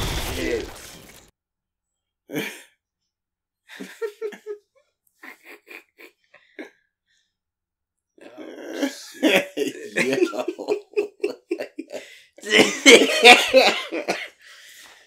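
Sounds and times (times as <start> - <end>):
men laughing quietly: 3.7 - 4.6, 5.2 - 6.7, 8.8 - 14.5.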